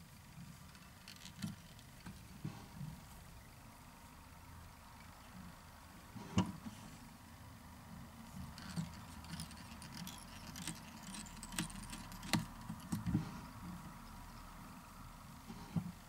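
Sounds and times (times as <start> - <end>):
faint rustling: 0.0 - 4.2
faint steady hum: 0.0 - 16.0
small clicks and ticks: 0.6 - 2.2, 8.4 - 13.2.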